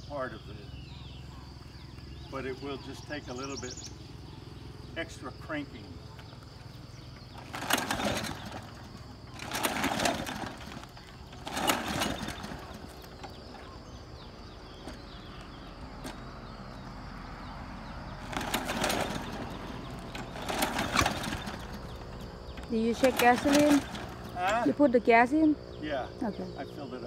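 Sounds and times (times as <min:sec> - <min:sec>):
lawnmower engine cranking: 0:06.7 - 0:16.9, 0:17.5 - 0:25.0.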